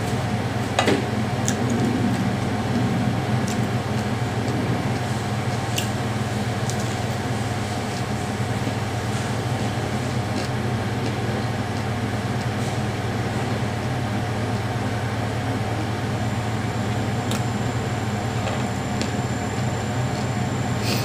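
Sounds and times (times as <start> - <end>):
electric fan humming: 0.0 - 21.0
person chewing: 9.0 - 12.8.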